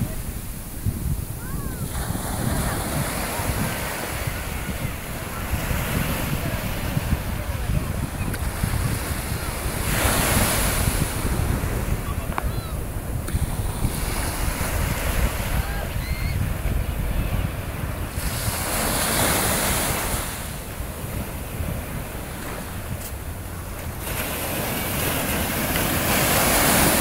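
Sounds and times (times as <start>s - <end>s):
surf breaking on beach: 0.0s - 27.0s
wind rumbling on microphone: 0.0s - 27.0s.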